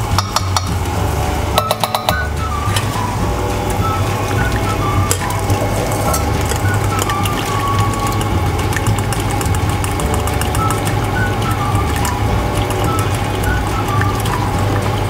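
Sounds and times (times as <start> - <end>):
background music with bass line: 0.0 - 15.0
utensils scraping a pot: 0.3 - 11.2.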